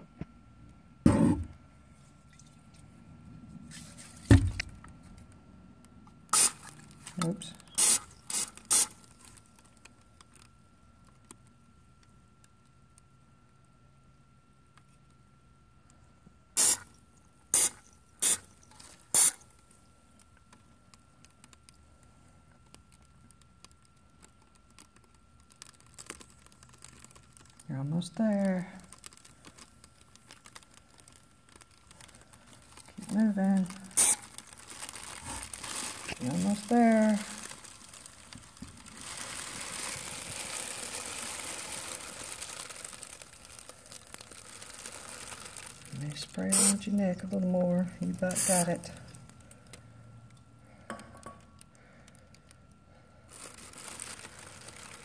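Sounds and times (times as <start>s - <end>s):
aerosol can hissing: 6.3s - 6.6s, 7.7s - 9.0s, 16.6s - 16.8s, 17.6s - 18.4s, 19.1s - 19.4s, 34.0s - 34.2s, 46.5s - 46.8s
plastic bag crinkling: 6.4s - 11.2s, 17.7s - 21.8s, 22.7s - 49.9s, 51.8s - 55.0s.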